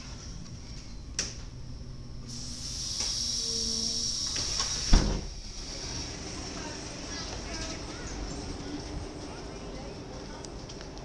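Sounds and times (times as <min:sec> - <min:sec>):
steady air hiss: 0:02.1 - 0:08.7.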